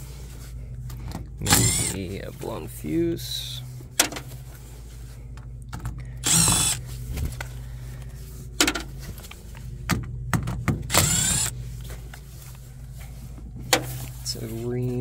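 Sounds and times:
steady low hum: 0.0 - 15.0
cordless driver whining: 1.0 - 2.2, 6.0 - 7.5, 10.9 - 11.6.

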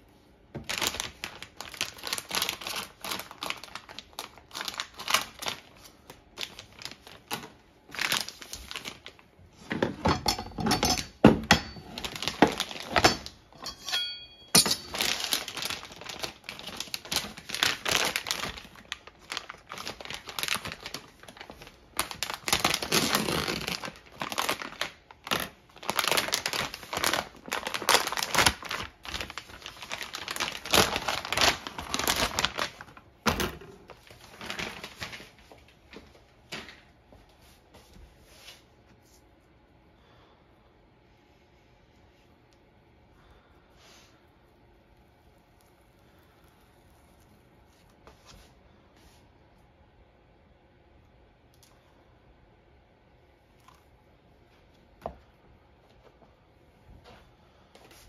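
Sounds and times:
plastic bag crinkling: 0.6 - 9.7, 11.0 - 13.5, 14.6 - 36.2.

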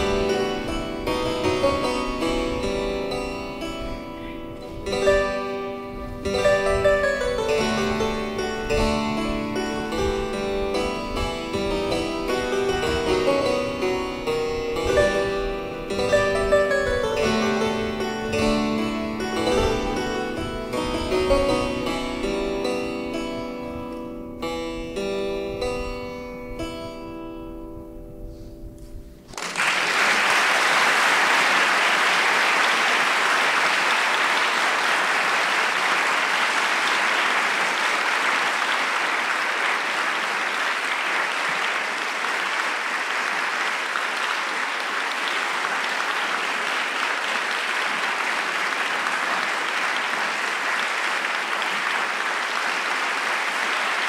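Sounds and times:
plucked keyboard chords ringing: 0.0 - 28.7
audience applause: 29.3 - 54.0.

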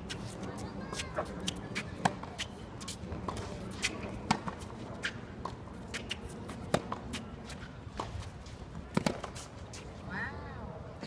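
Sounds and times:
tennis racket hitting ball: 0.0 - 8.2
tennis ball bouncing: 0.0 - 9.5
crowd chatter: 0.0 - 11.0.

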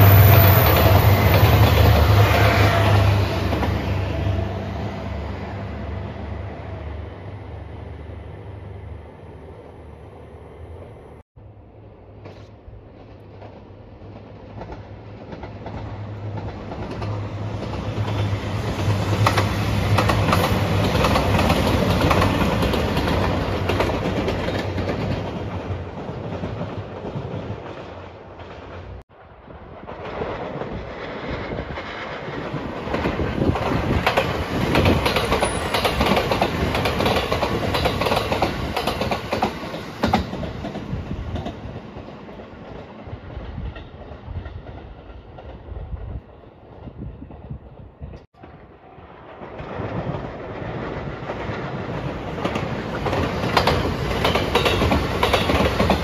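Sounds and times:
diesel train engine drone: 0.0 - 30.1
train wheels clattering over rail joints: 29.9 - 45.8, 49.6 - 56.0.

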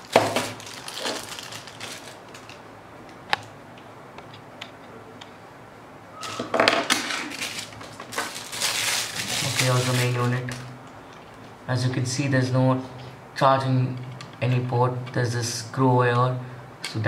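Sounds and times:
plastic bag crinkling: 0.0 - 2.6, 6.9 - 10.7.

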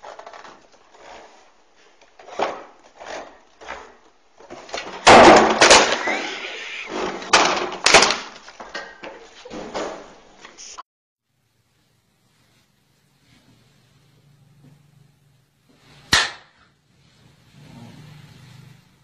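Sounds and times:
chair knocked over: 4.6 - 10.1.

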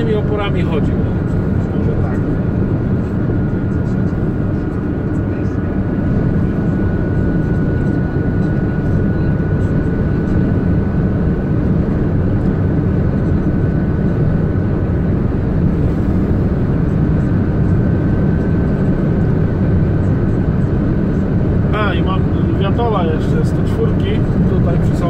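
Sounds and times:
vehicle engine and road noise: 0.0 - 25.0.

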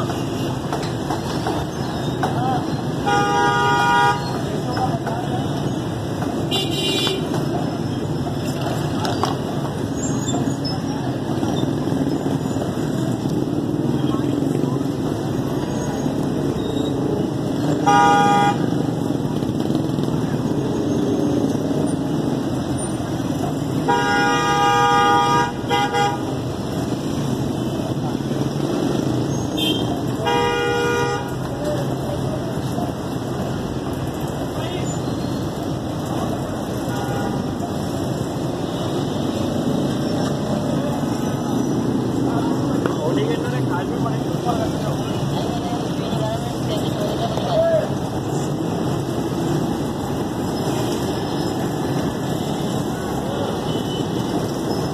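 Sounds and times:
steady background noise: 0.0 - 54.9
street traffic din: 0.0 - 54.9
vehicle horn honking: 3.0 - 4.4, 17.8 - 18.8, 23.9 - 26.3, 29.6 - 31.4.

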